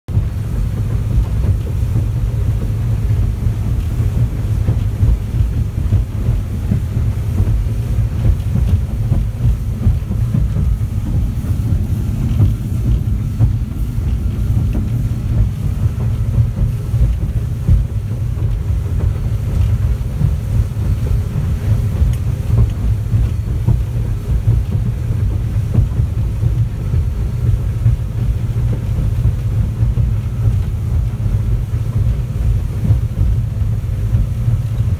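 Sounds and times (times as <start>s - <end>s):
hull running through rough water: 0.1s - 34.9s
outboard engine drone: 0.1s - 34.9s.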